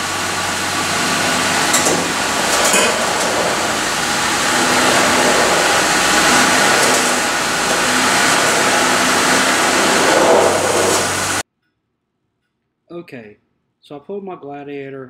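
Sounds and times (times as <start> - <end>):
truck engine running at low speed: 0.0 - 11.4.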